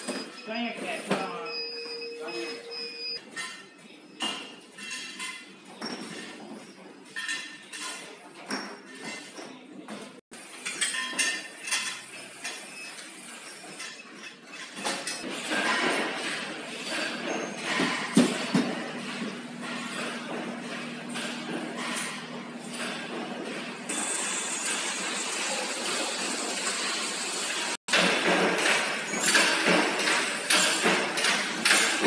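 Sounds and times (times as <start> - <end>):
factory background noise: 8.8 - 32.0.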